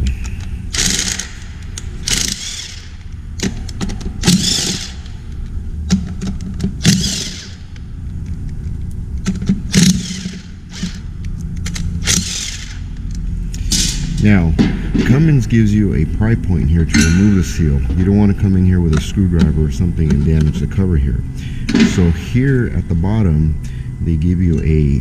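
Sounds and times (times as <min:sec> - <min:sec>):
steady low hum: 0:00.0 - 0:25.0
power ratchet spinning nuts: 0:00.7 - 0:01.4, 0:02.0 - 0:03.1, 0:04.2 - 0:05.1, 0:06.8 - 0:07.7, 0:09.7 - 0:11.1, 0:11.7 - 0:12.9.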